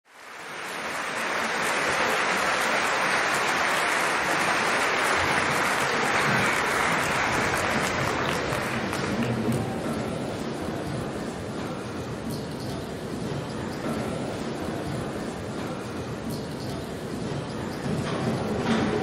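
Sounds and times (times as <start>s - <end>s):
audience applauding: 0.1s - 10.2s.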